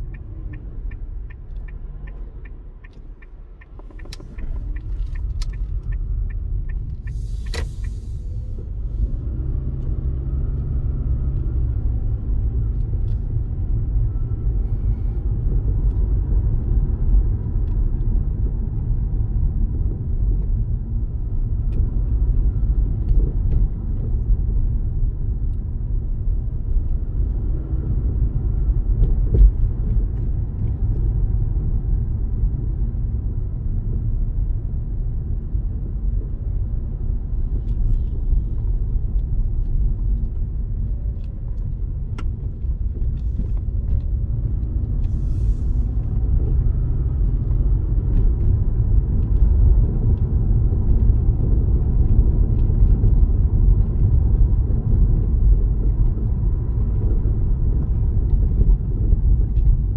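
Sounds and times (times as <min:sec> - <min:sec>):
low rumble of tyres and engine: 0:00.0 - 0:59.9.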